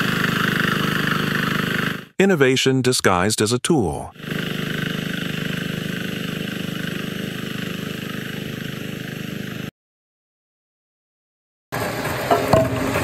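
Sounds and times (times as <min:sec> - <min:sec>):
small engine running: 0:00.0 - 0:02.2, 0:04.1 - 0:09.7, 0:11.8 - 0:13.0.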